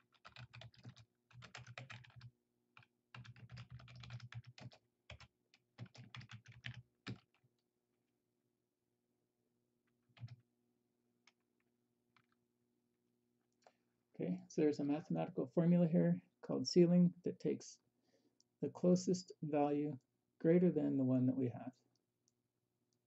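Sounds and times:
computer keyboard typing: 0.0s - 7.4s, 10.1s - 10.4s.

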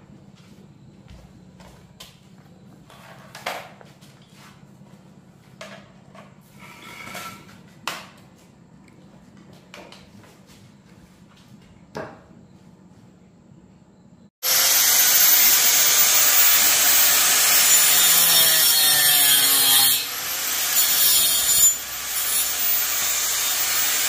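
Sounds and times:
footsteps on concrete: 0.2s - 2.9s
tool clattering on concrete floor: 2.8s - 4.4s, 5.4s - 8.4s.

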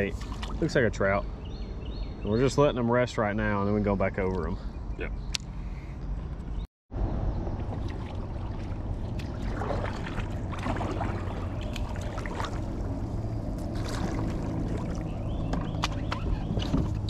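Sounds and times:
steady low rumble: 5.5s - 17.0s
paddle splashing in water: 7.6s - 17.0s.

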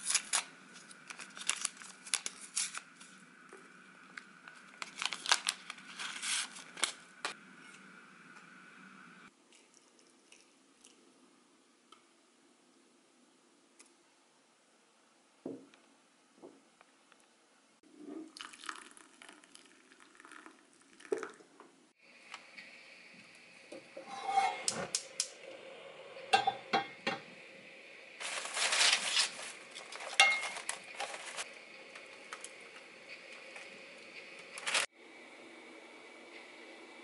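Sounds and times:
pans clattering and rustling: 28.2s - 31.5s.

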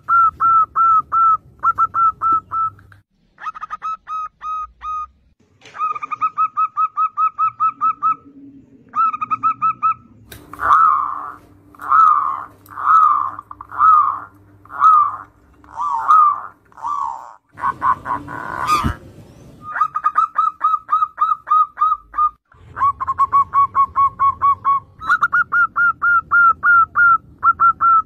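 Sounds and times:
dove giving wavering coos: 0.0s - 5.1s, 5.8s - 28.0s
doves cooing staccato: 5.7s - 28.0s.

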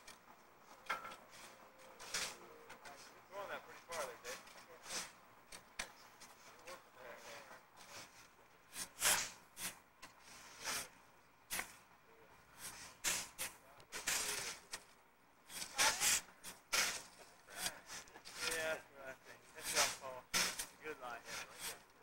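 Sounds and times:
shovels scraping sand: 1.3s - 3.0s, 4.0s - 5.2s, 6.2s - 11.8s, 12.6s - 14.9s, 15.5s - 22.0s.

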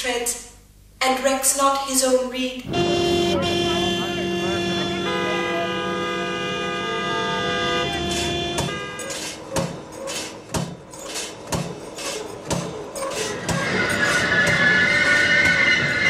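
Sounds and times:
car horns honking: 2.6s - 9.9s.

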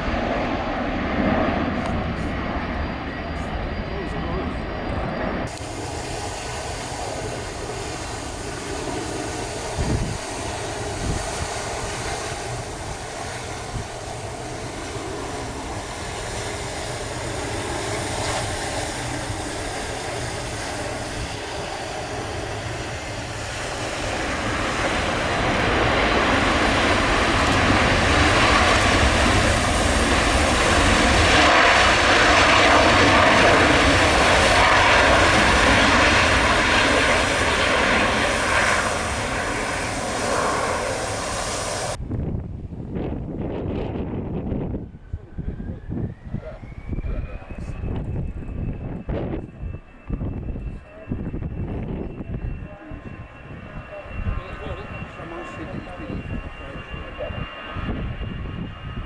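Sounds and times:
jet engines landing: 0.0s - 59.0s.

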